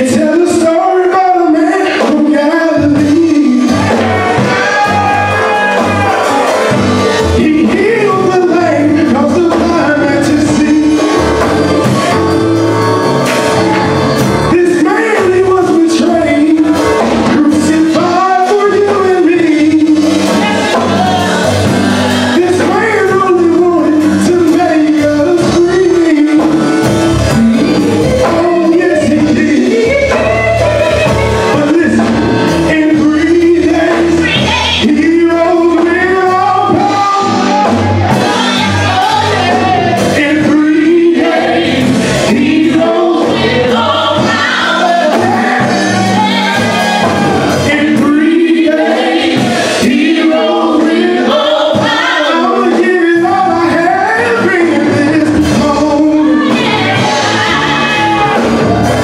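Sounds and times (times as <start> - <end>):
group singing gospel song: 0.0 - 59.0
instrumental backing with bass: 0.0 - 59.0.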